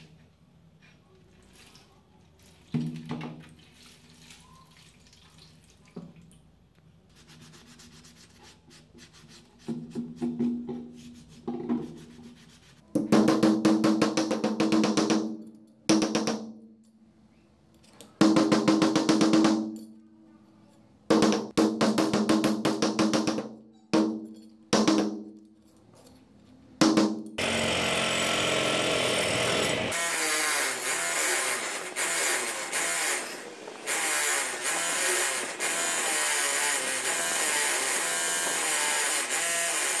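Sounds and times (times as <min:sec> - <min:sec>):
buffing wheel on steel blade: 0:28.8 - 0:40.0.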